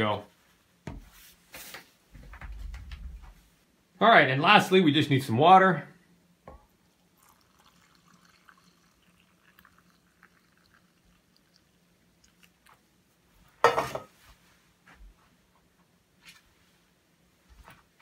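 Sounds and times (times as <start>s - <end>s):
water pouring into a tub: 7.0s - 12.6s.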